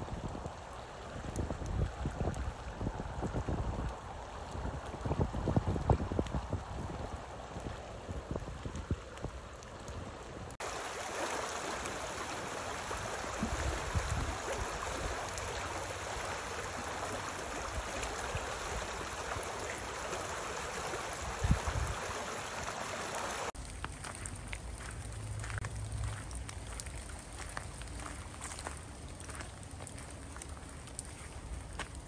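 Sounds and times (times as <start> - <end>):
wind thumps on microphone: 4.6 - 9.4
creek water rushing: 9.0 - 23.6.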